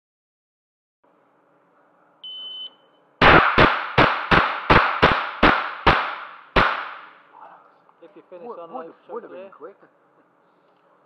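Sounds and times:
shot timer beep: 0:02.3 - 0:02.8
rifle shots echoing indoors: 0:03.2 - 0:07.2.

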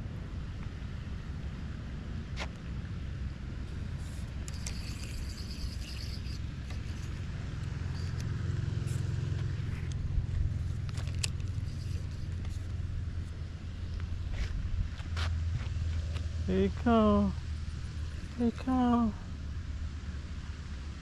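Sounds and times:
wind rumbling on microphone: 0:00.0 - 0:21.0
handling clicks: 0:10.8 - 0:12.6.

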